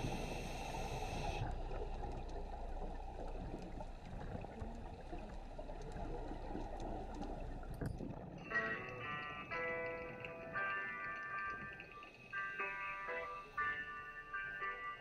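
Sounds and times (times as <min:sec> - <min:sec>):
underwater rush of water: 0:00.0 - 0:12.4
faint clicks: 0:01.4 - 0:08.3.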